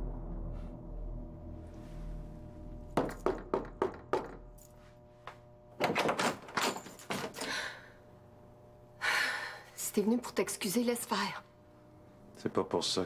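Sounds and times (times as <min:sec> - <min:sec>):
low music bed: 0:00.0 - 0:03.3
knocking on wooden door: 0:03.0 - 0:04.4.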